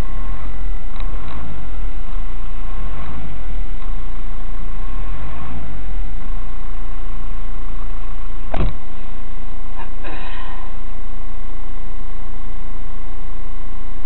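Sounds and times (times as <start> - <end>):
car engine and road rumble: 0.0 - 14.0
sharp click: 8.5 - 8.8.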